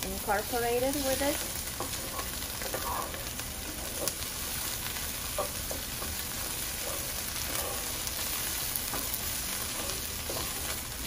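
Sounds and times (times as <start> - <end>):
vegetables sizzling in skillet: 0.0 - 11.0
wooden spoon scraping pan: 1.3 - 4.2, 5.3 - 10.8.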